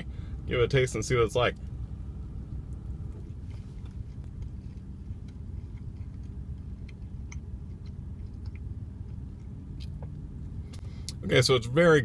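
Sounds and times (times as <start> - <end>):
low rumble in car cabin: 0.0 - 12.0
man chewing food: 2.4 - 11.2.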